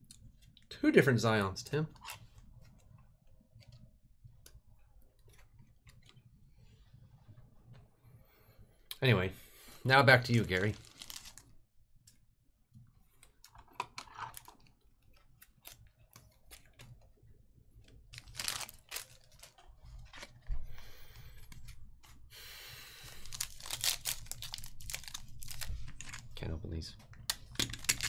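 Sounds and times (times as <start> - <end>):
cards clicking and rustling: 10.6 - 11.4, 18.0 - 20.4, 23.2 - 26.4, 27.2 - 28.0
foil wrapper crinkling: 10.6 - 11.5, 18.1 - 20.4, 23.0 - 26.3.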